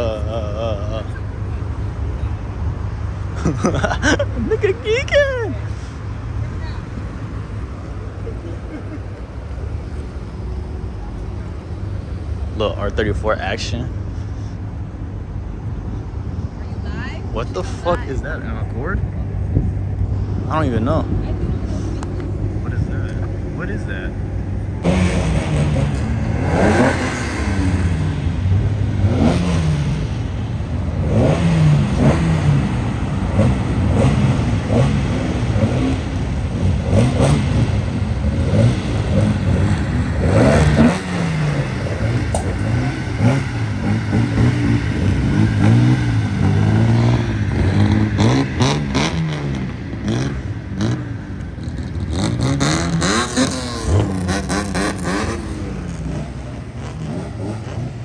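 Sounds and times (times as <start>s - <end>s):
car engines revving: 0.0s - 58.0s.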